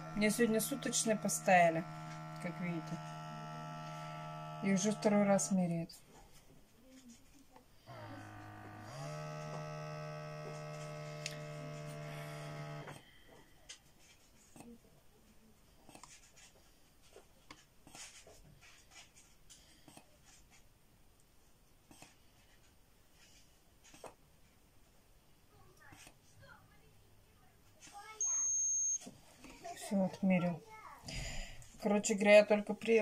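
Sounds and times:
electric pump hum: 0.0s - 5.9s, 7.8s - 13.3s.

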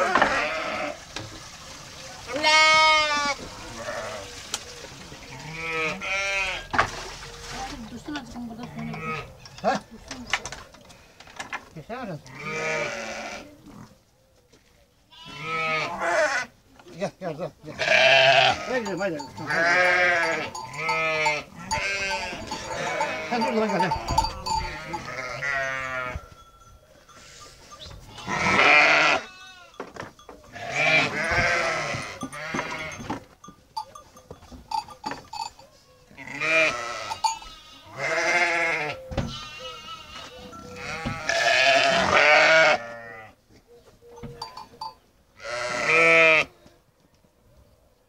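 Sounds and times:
sheep bleating: 0.0s - 1.0s, 2.3s - 4.3s, 5.3s - 6.7s, 12.2s - 13.8s, 15.1s - 16.5s, 17.7s - 26.2s, 28.1s - 29.8s, 30.5s - 33.0s, 36.2s - 43.4s, 45.4s - 46.5s.

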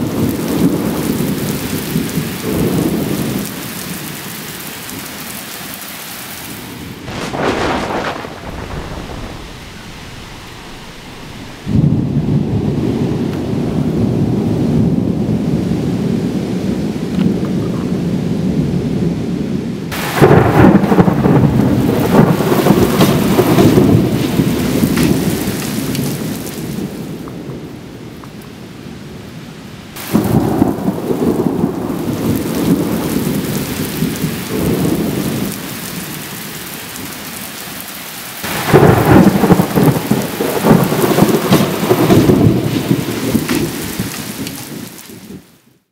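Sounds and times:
steady rain: 0.0s - 45.9s
thunder rolling: 6.8s - 17.0s, 19.9s - 27.7s, 30.0s - 36.1s, 38.4s - 45.4s.

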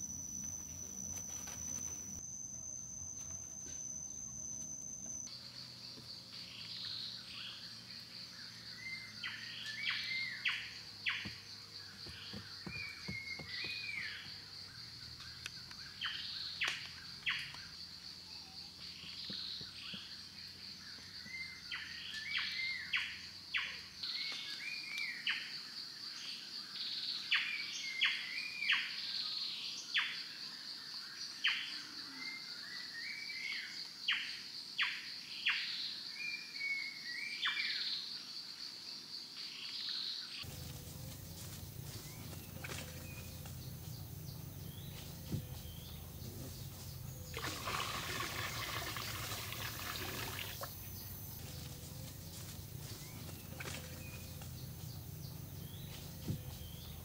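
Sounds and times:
insects droning: 0.0s - 57.0s.

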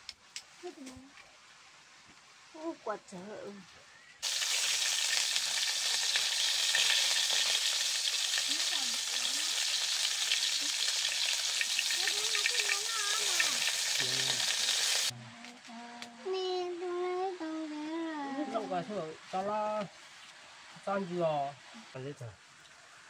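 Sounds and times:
meat sizzling in a wok: 4.2s - 15.1s.

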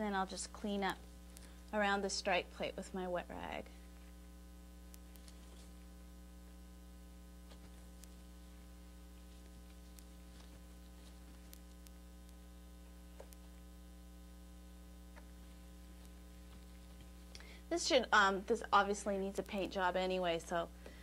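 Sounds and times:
electrical mains hum: 0.0s - 21.0s
faint clicks: 9.6s - 12.4s, 13.1s - 13.6s.

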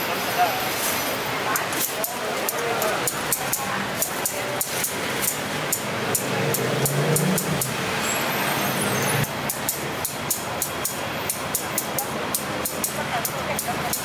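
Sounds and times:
metal tongs and scissors clicking: 1.5s - 7.8s, 9.4s - 14.0s.

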